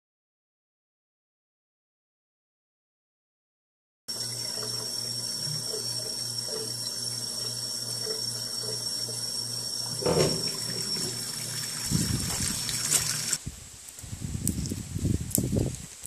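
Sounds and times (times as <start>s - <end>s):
faucet water splashing into sink: 4.1s - 13.4s.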